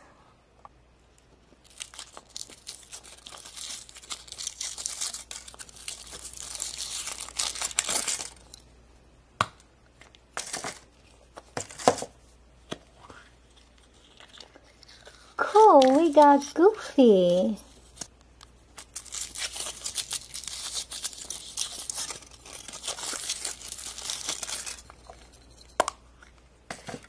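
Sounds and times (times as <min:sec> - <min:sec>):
foil wrapper crinkling and tearing: 0:01.6 - 0:08.6, 0:17.3 - 0:25.1.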